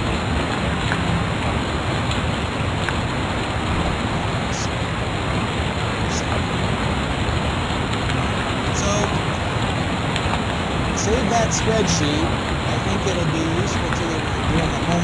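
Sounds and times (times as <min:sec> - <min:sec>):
loud background hiss: 0:10.8 - 0:15.0
faint voices: 0:11.0 - 0:15.0.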